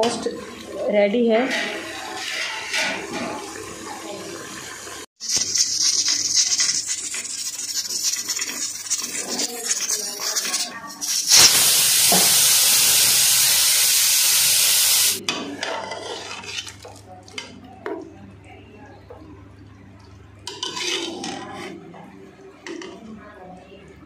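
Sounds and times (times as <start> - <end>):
pressure cooker hissing steam: 11.0 - 15.2
pressure cooker whistle: 11.2 - 15.2.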